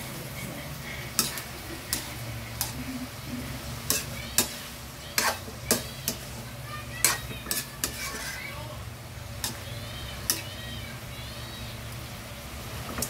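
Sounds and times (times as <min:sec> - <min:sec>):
metal spoon scraping wok: 0:00.8 - 0:08.8, 0:09.4 - 0:10.6.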